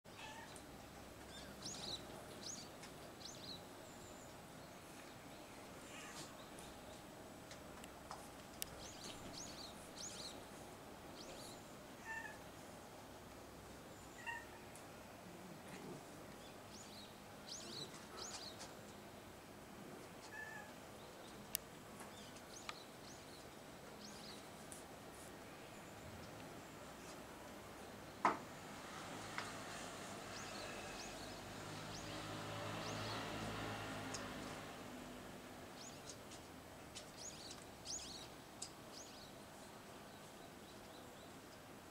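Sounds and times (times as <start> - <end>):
small birds chirping: 0.1 - 12.5, 13.8 - 14.8, 15.6 - 19.2, 20.0 - 28.2, 29.4 - 34.7, 35.7 - 41.7
cat mewing: 14.2 - 14.6.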